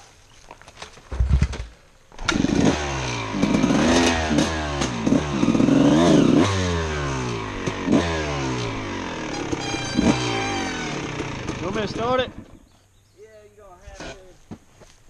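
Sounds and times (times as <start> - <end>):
dirt bike knocking over rough ground: 0.5 - 2.4
dirt bike engine revving: 1.1 - 12.8.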